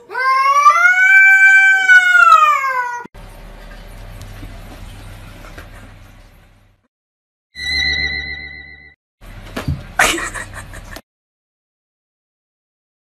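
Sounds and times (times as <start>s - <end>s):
cat yowling: 0.0s - 3.1s.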